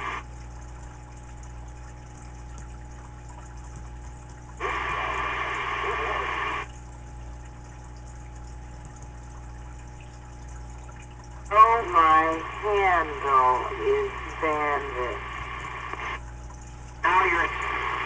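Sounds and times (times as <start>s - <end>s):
radio static burst: 0.0s - 0.2s, 4.6s - 6.7s, 11.5s - 16.2s, 17.0s - 18.0s
low electrical hum: 0.0s - 18.0s.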